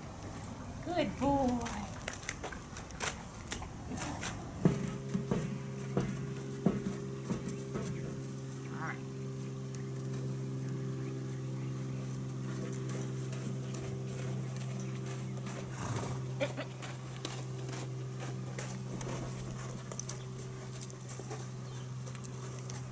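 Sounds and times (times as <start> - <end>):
steady low hum: 0.0 - 22.9
hoof steps on sand: 12.1 - 22.9.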